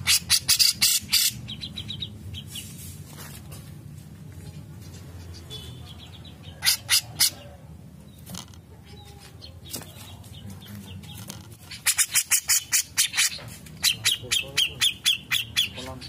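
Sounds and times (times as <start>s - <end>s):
bird harsh calls: 0.0s - 2.8s, 5.2s - 10.2s, 10.8s - 16.0s
bird harsh chattering: 0.0s - 2.8s, 5.2s - 7.6s, 11.6s - 16.0s.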